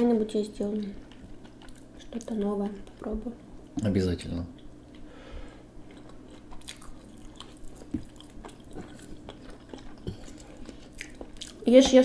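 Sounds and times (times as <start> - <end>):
chewing soft food: 1.0 - 3.0, 5.8 - 11.9.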